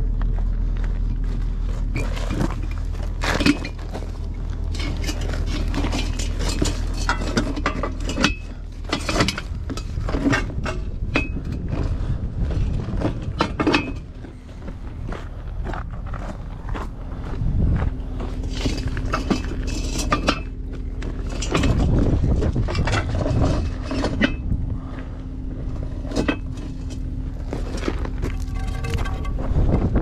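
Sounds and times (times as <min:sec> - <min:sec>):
footsteps on gravel: 0:00.0 - 0:07.1, 0:09.5 - 0:29.9
steady low hum: 0:00.0 - 0:30.0
steel dolly clanking: 0:01.0 - 0:30.0.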